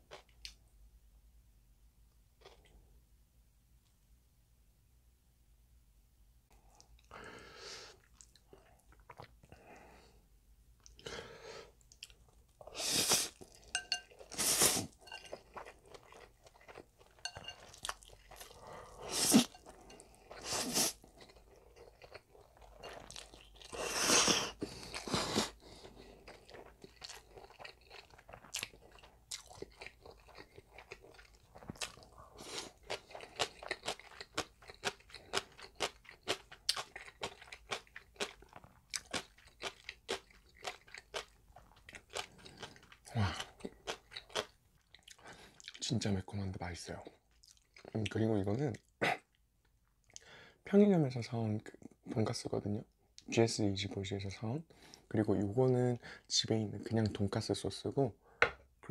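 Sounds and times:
slurping noodles: 0:12.7 - 0:13.6, 0:14.2 - 0:15.0, 0:18.4 - 0:19.6, 0:20.4 - 0:21.1, 0:23.6 - 0:25.6
wet chewing with mouth clicks: 0:24.4 - 0:45.8, 0:47.3 - 0:48.2.

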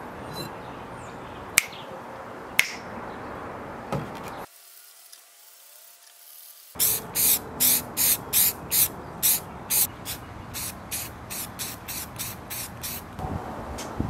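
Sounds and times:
spray can hissing bursts: 0:04.5 - 0:13.2.

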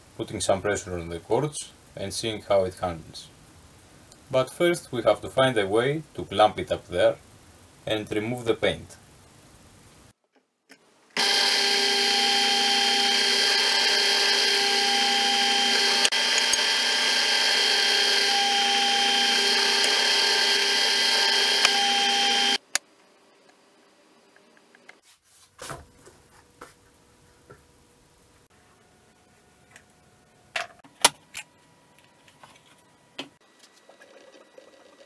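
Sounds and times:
drill press motor drilling: 0:11.2 - 0:22.6.

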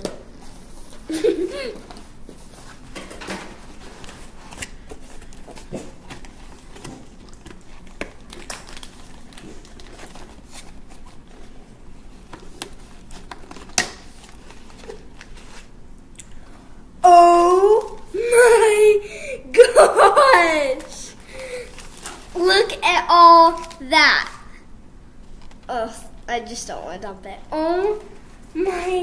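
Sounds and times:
cardboard and paper rustling: 0:00.4 - 0:15.7, 0:20.6 - 0:23.9.

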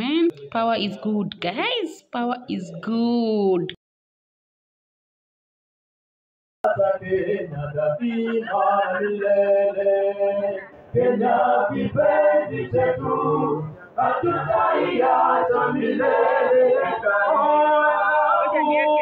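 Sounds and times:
group of people singing: 0:06.6 - 0:19.0.

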